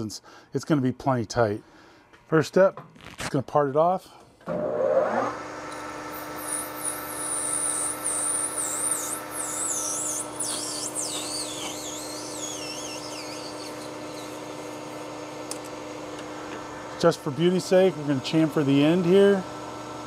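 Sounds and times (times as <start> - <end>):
metal lathe humming: 4.6 - 20.0
high wavering cutting squeal: 6.1 - 14.8.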